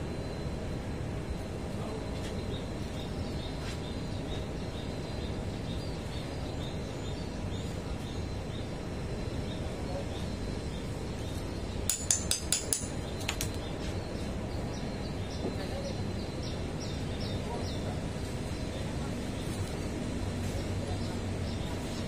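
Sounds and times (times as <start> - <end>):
low background noise: 0.0 - 22.0
sharp metallic clinks: 11.9 - 13.0.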